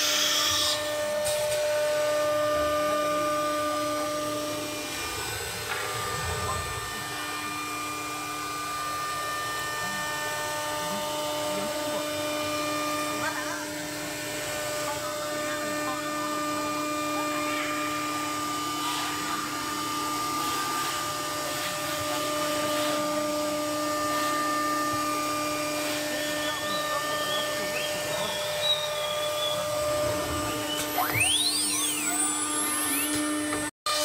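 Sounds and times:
cnc router electric whine: 0:00.0 - 0:34.0.

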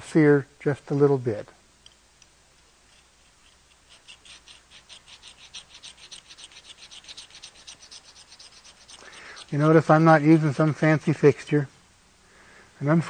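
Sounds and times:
sharpening stone rubbing metal: 0:02.9 - 0:10.0.

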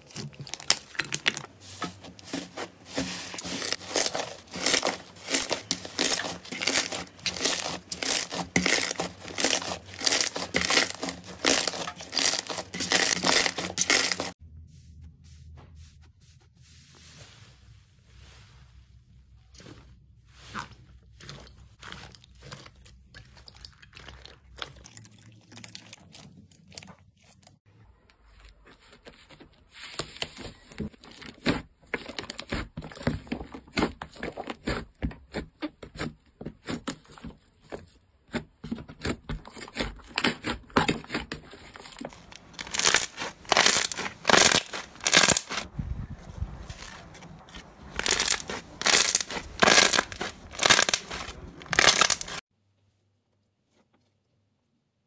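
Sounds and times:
slime popping and crackling: 0:00.0 - 0:01.5, 0:03.0 - 0:14.4, 0:41.6 - 0:45.7, 0:47.9 - 0:52.4.

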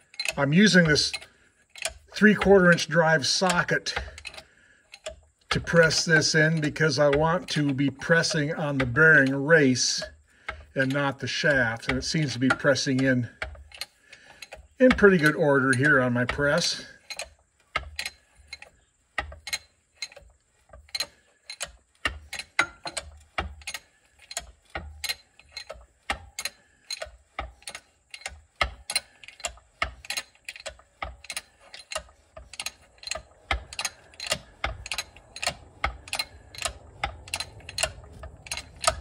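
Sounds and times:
hand press clicking: 0:20.9 - 0:39.0.

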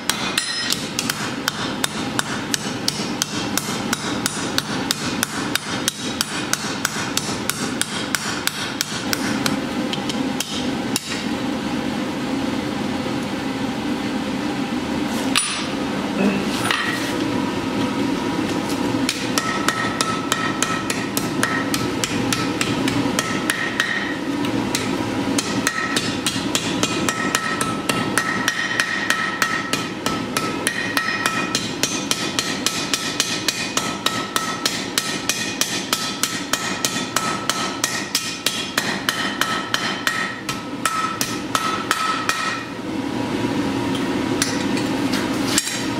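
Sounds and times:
hammer striking hot steel: 0:00.0 - 0:11.3, 0:15.3 - 0:15.8, 0:19.0 - 0:42.8, 0:44.4 - 0:44.9, 0:45.5 - 0:45.9
anvil ringing tone: 0:00.2 - 0:00.8.

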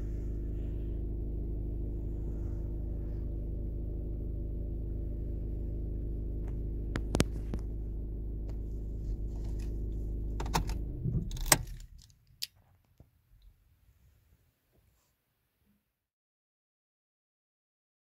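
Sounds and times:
diesel engine idling: 0:00.0 - 0:12.0
engine switched off running down: 0:00.0 - 0:12.0.

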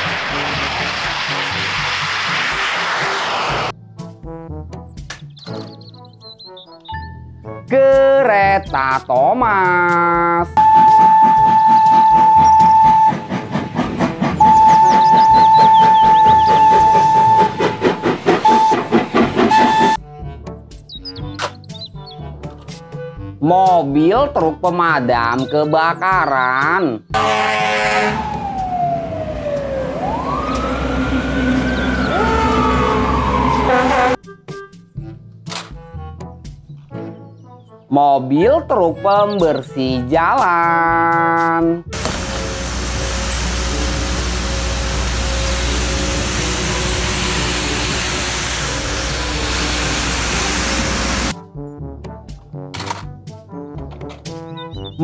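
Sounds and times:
loud horn blast: 0:00.0 - 0:01.8, 0:10.6 - 0:13.3, 0:14.4 - 0:20.0, 0:27.2 - 0:28.4, 0:30.7 - 0:34.2, 0:42.0 - 0:51.4
fire truck sirens wailing: 0:00.0 - 0:03.7, 0:10.6 - 0:20.0, 0:27.2 - 0:34.2, 0:41.9 - 0:51.4
street sweeper running: 0:00.0 - 0:03.7, 0:14.3 - 0:20.0, 0:42.0 - 0:51.4
truck engines rumbling: 0:00.0 - 0:03.7, 0:10.4 - 0:20.0, 0:27.2 - 0:34.2, 0:41.9 - 0:51.4
low hum: 0:42.0 - 0:51.3.

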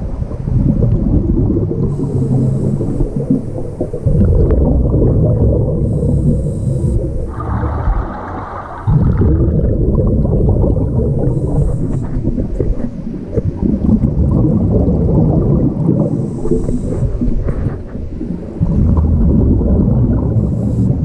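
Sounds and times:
bubbling exhale underwater: 0:00.0 - 0:21.0
regulator inhale hiss: 0:01.9 - 0:04.1, 0:05.8 - 0:07.4, 0:11.2 - 0:12.6, 0:16.0 - 0:17.8, 0:20.4 - 0:21.0.

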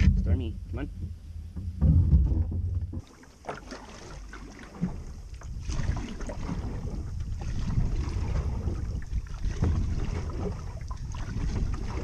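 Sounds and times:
knocks against hull: 0:00.0 - 0:06.9
paddle water splashing: 0:01.0 - 0:12.0
wind buffeting microphone: 0:04.8 - 0:12.0.

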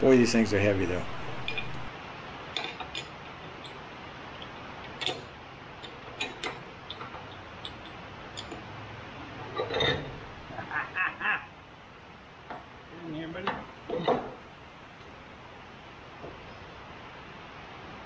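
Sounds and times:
steady background noise: 0:00.0 - 0:18.0
metal parts clicking and tapping: 0:01.3 - 0:01.9, 0:02.5 - 0:03.8, 0:04.4 - 0:08.7.

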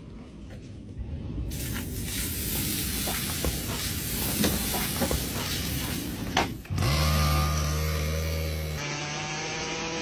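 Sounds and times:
steak sizzling on hot metal: 0:01.5 - 0:06.1.

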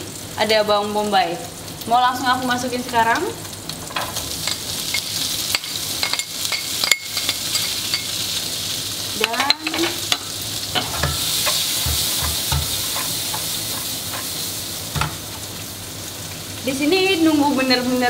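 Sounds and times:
meat and vegetables sizzling in pan: 0:00.0 - 0:18.0
spatula clicking and knocking in pan: 0:03.9 - 0:08.2, 0:09.2 - 0:15.4.

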